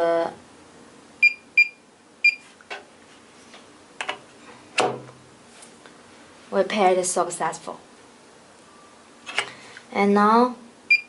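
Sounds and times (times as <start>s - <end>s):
keypad beeps: 1.2s - 2.4s.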